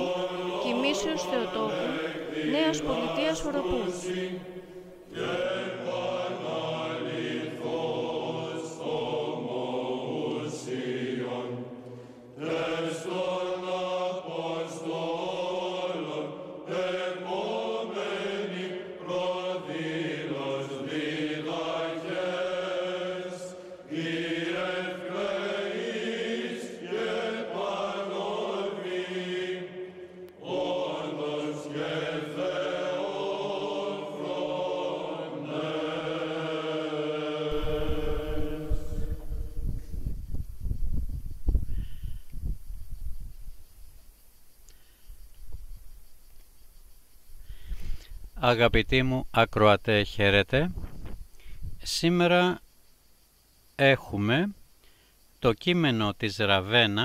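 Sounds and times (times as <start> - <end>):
chanted hymn singing: 0.0 - 43.7.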